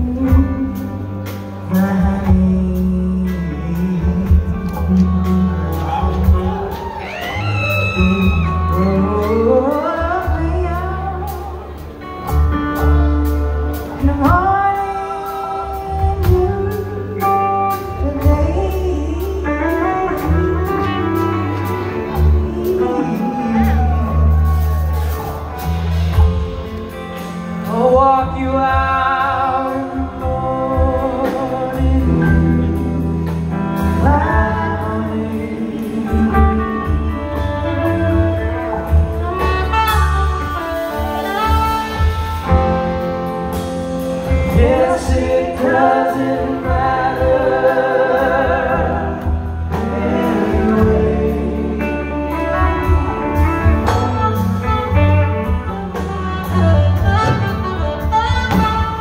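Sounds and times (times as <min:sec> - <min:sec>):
electric bass line: 0:00.0 - 0:59.0
live rock band playing: 0:00.0 - 0:59.0
people singing: 0:44.2 - 0:52.4.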